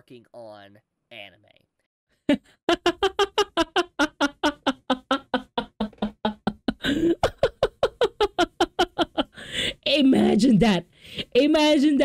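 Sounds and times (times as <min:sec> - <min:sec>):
man laughing hard: 0:02.7 - 0:09.4
wheezing breath: 0:09.3 - 0:09.8.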